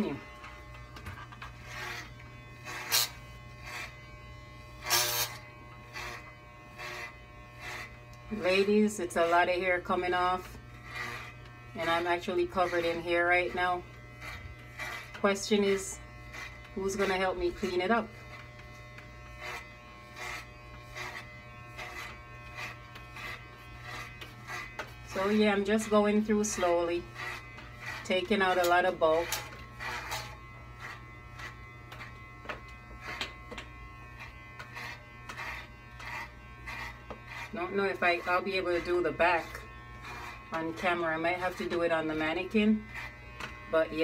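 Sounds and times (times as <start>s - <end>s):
electric hair clippers buzzing: 0.0s - 44.0s.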